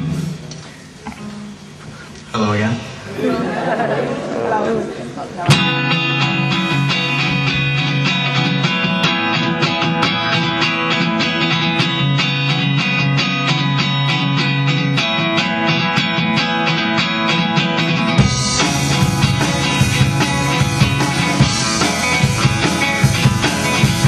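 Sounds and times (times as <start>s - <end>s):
drums: 0.0s - 4.4s, 5.3s - 24.0s
guitar strumming chords: 5.4s - 24.0s.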